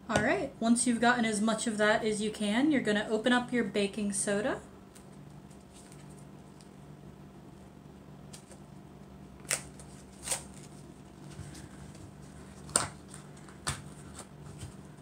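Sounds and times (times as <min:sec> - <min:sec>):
cardboard snapping and crackling: 0:09.4 - 0:10.8, 0:12.6 - 0:14.8.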